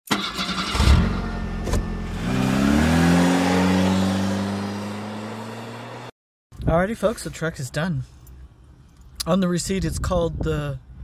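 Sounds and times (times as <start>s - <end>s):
vehicle engine revving: 0.3s - 6.1s.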